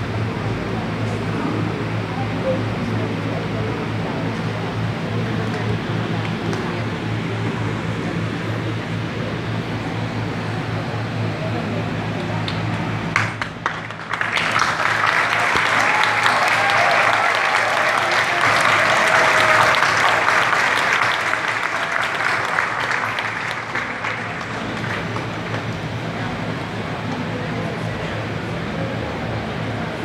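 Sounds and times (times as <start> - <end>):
large crowd applauding: 11.5 - 27.1.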